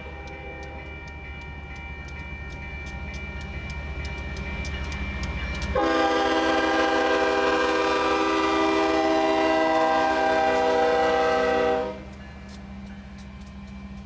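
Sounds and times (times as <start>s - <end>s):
locomotive air horn blast: 5.8s - 12.1s.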